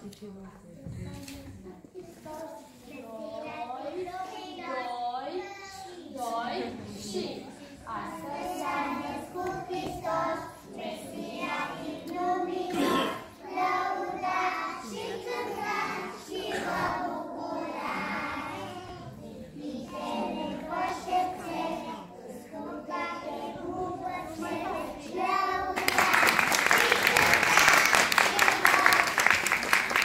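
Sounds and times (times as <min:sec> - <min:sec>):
young children singing: 0:01.2 - 0:30.0.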